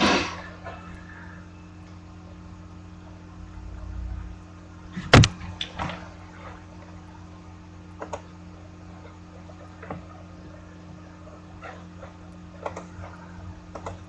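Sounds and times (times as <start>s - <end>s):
low electrical hum: 0.0s - 14.0s
sharp knock: 5.0s - 5.4s.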